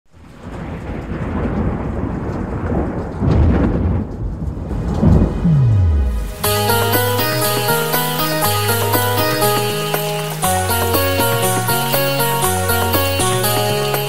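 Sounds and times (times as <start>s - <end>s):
rolling thunder: 0.2s - 6.4s
rain hissing: 4.5s - 14.0s
low tone sliding downward: 5.1s - 13.9s
plucked-string music: 5.5s - 14.0s.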